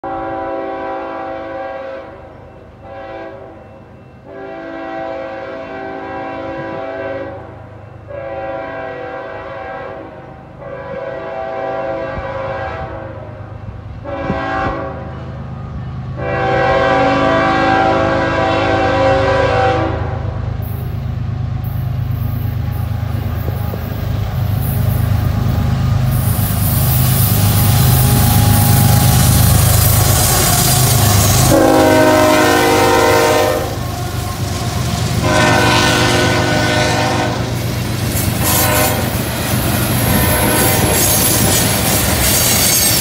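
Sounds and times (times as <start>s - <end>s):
locomotive air horn blasts: 0.0s - 20.4s, 27.4s - 37.6s, 38.2s - 42.8s
locomotive rumble: 10.4s - 43.0s.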